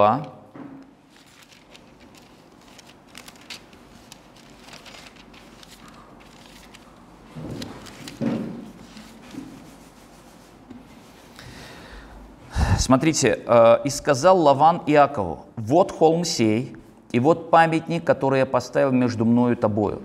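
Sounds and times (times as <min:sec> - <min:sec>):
book pages rustling and turning: 0:01.1 - 0:11.4.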